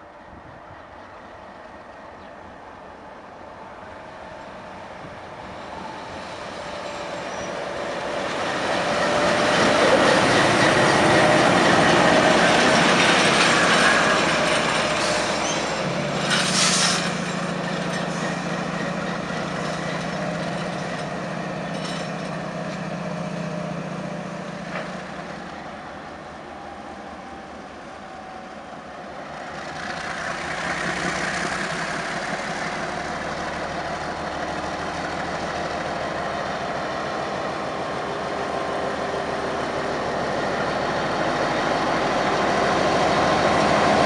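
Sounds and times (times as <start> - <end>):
diesel locomotive engine: 0.0 - 44.0.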